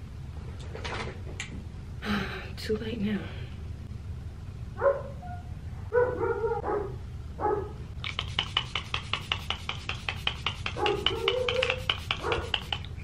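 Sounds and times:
animal yelping: 8.0 - 13.0
rapid sharp clicks: 8.0 - 13.0.

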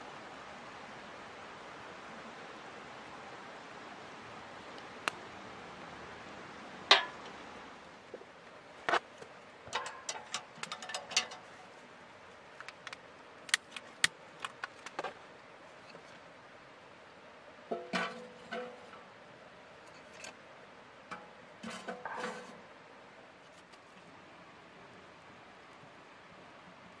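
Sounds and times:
metal stove door clicking: 9.7 - 11.4.

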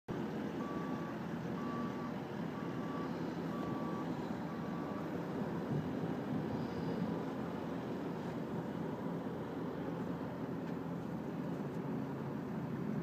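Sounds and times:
engine running: 0.1 - 13.0
reversing alarm beeps: 0.6 - 5.2.

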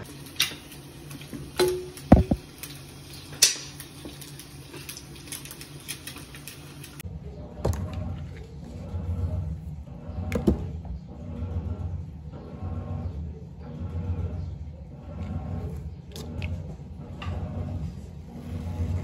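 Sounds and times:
utensils and dishes clinking: 0.0 - 7.0.

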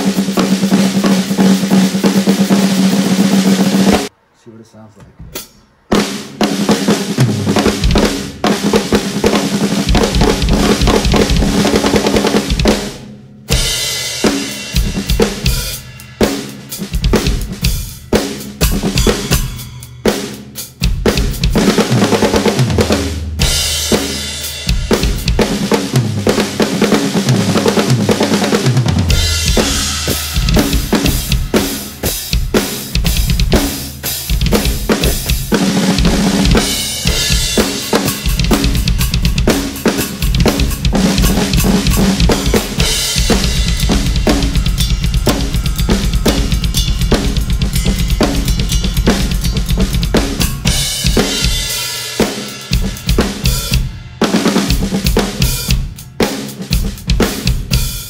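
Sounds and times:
cymbals: 5.4 - 58.0
bass drum: 6.6 - 12.9, 13.5 - 15.9, 20.8 - 56.0.

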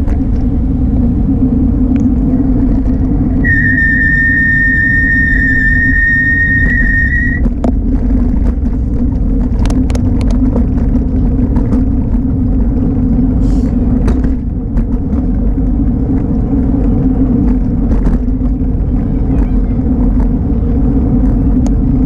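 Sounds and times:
road rumble: 0.0 - 22.0
wind: 0.0 - 22.0
high steady squeal: 3.1 - 7.6
small clicks and rattles: 7.6 - 12.2.

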